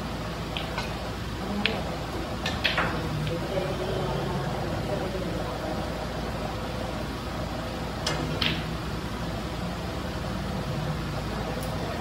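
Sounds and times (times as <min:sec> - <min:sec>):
background hum of hall: 0:00.0 - 0:12.0
snooker balls clicking: 0:00.4 - 0:03.5, 0:08.0 - 0:08.8.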